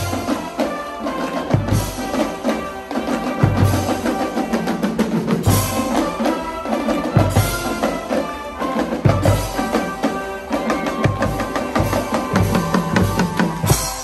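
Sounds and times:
shawm band playing held chords: 0.0s - 14.0s.

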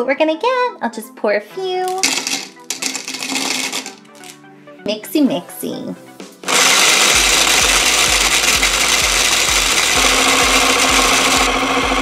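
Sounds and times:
toy blender whirring buzz: 1.9s - 4.4s, 6.4s - 12.0s.

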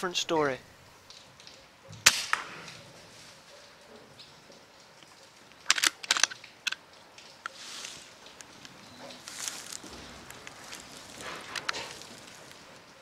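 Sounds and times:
air rifle action clicks: 5.6s - 6.8s.

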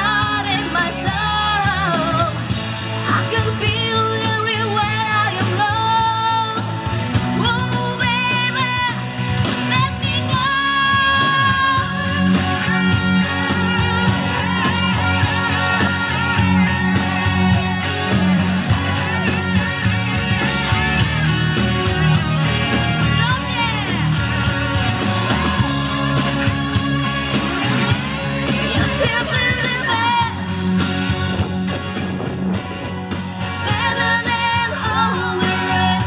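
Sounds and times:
woman singing into microphone: 0.0s - 17.3s, 28.6s - 30.6s, 33.4s - 36.0s
loud accompanying music: 0.0s - 36.0s.

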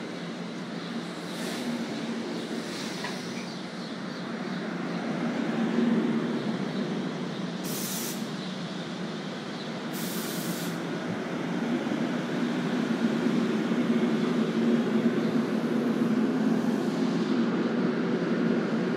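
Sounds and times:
train coaches rolling past: 0.0s - 18.9s
short hisses of air: 2.5s - 3.3s, 7.7s - 8.3s, 10.0s - 10.8s.

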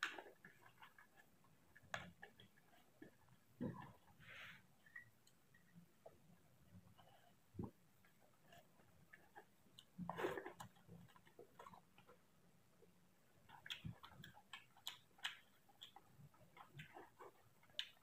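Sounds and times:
mouth chewing: 13.4s - 18.0s.

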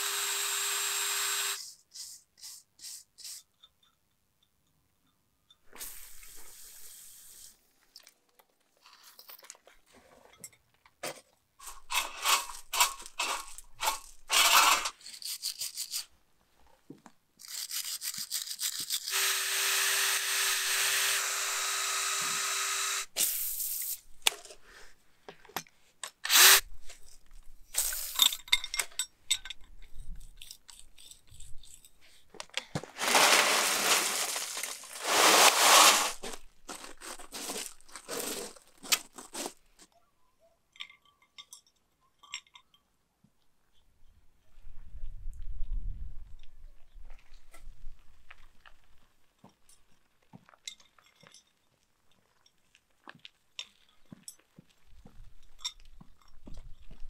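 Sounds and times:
hand tools scraping and clicking: 7.9s - 16.2s, 17.4s - 22.6s, 25.3s - 39.9s
cut-off disc grinding steel: 19.0s - 23.1s.

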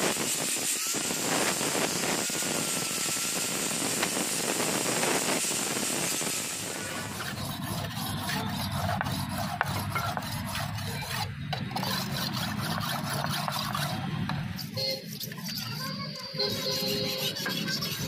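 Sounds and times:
knife scraping on whetstone: 6.8s - 18.0s.

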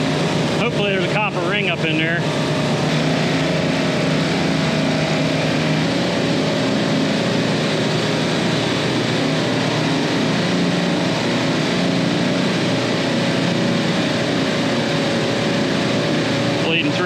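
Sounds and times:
constant low hum: 0.0s - 17.0s
refrigeration compressors droning: 0.0s - 17.0s.

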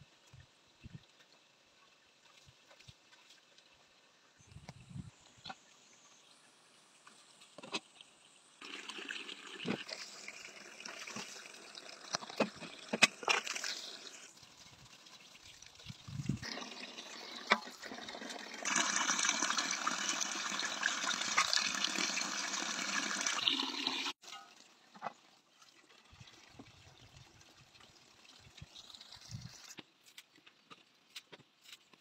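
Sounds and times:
water pouring into metal basin: 8.6s - 24.8s, 25.5s - 29.8s.

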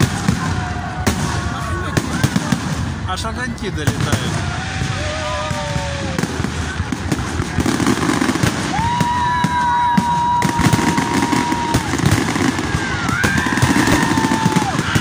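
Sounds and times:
fireworks crackling and popping: 0.0s - 15.0s
high firework whistle: 8.0s - 15.0s
falling firework whistle: 8.3s - 15.0s.

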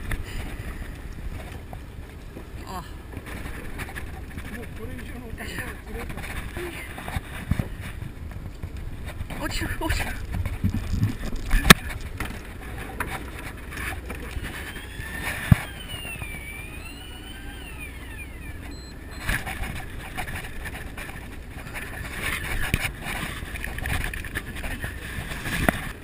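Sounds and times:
boat engine rumble: 0.0s - 26.0s
sea noise: 0.0s - 26.0s
wind: 0.0s - 26.0s
rising and falling whine: 13.8s - 22.7s.

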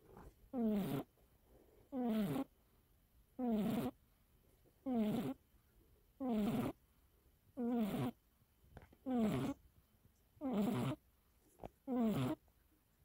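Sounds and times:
cat snoring: 0.5s - 1.1s, 1.9s - 2.5s, 3.4s - 4.0s, 4.8s - 5.4s, 6.2s - 6.8s, 7.6s - 8.2s, 9.0s - 9.6s, 10.4s - 11.0s, 11.8s - 12.4s.

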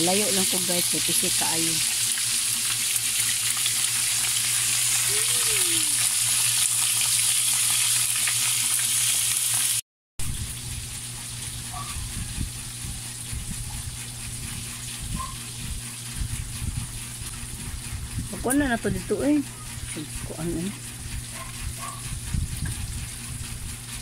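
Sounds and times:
fish sizzling in hot oil: 0.0s - 9.8s.

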